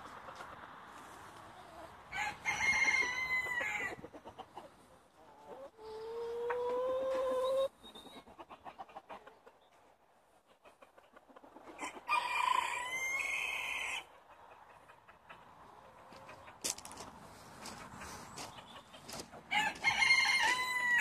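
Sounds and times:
roosters crowing: 1.9 - 4.1, 11.8 - 14.1, 19.5 - 21.0
hens clucking softly: 2.7 - 19.5.

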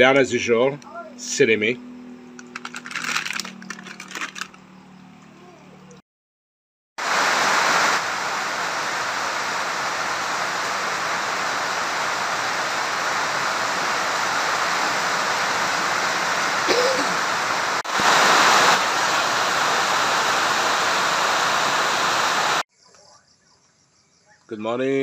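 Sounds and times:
heavy rain pouring: 7.0 - 22.6.

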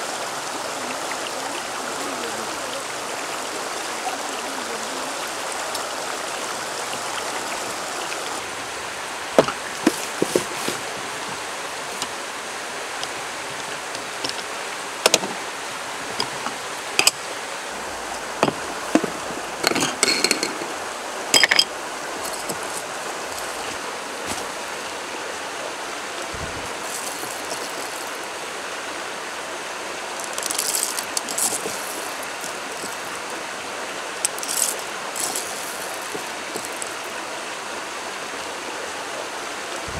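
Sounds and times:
stream running over stones: 0.0 - 39.9
coffee beans rattling: 18.4 - 20.7, 21.4 - 23.7, 26.8 - 28.2, 30.2 - 33.1, 34.2 - 37.0
jar lid being unscrewed: 18.4 - 20.7.

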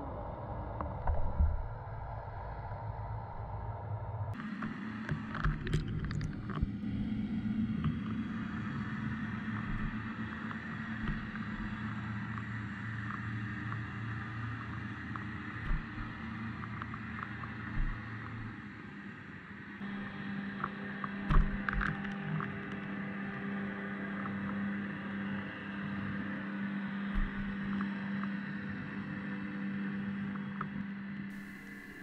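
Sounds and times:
muffled water wash: 0.0 - 18.8
low underwater drone: 0.0 - 32.0.

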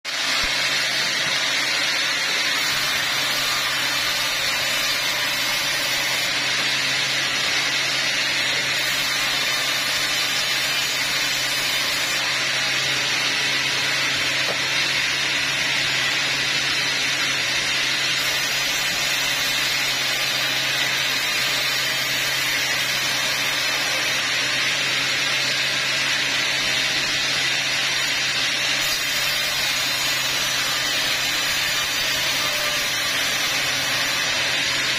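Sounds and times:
band saw blade hissing: 2.5 - 13.4.

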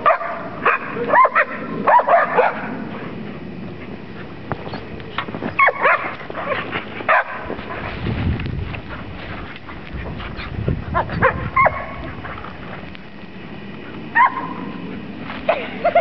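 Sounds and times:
dogs yipping and barking: 0.0 - 3.0, 4.6 - 7.9, 8.9 - 12.6, 14.0 - 15.1.

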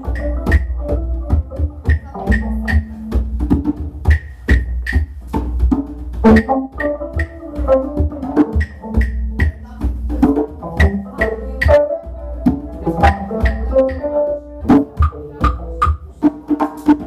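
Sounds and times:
sustained electric guitar notes: 0.0 - 3.3, 6.2 - 9.9, 10.6 - 15.8
drum kit beat: 0.0 - 17.0.

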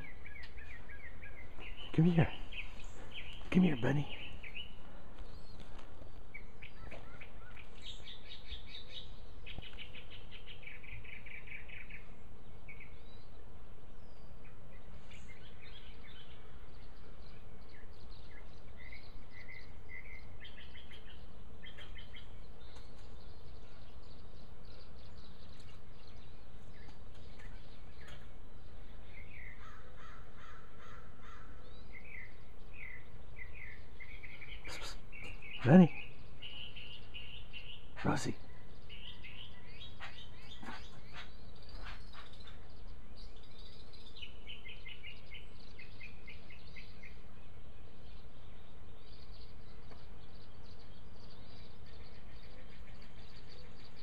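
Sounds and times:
birds chirping and trilling: 0.0 - 54.0
low background noise: 0.0 - 54.0.

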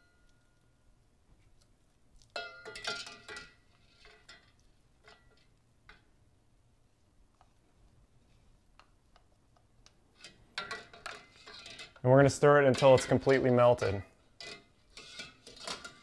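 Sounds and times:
metal pot clanking: 2.3 - 6.0, 10.2 - 16.0
scraping into metal pot: 2.6 - 5.4, 10.1 - 16.0.

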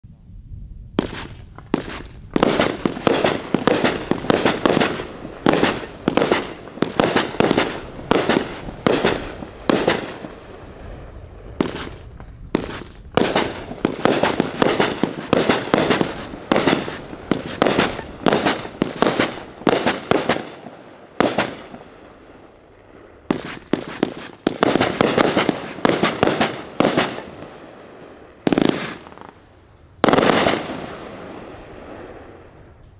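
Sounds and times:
fireworks cake bangs: 1.0 - 10.4, 11.6 - 20.6, 23.3 - 27.3.

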